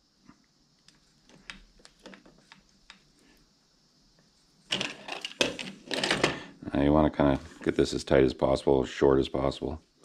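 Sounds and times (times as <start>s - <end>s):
steel cable being handled: 0.8s - 3.4s.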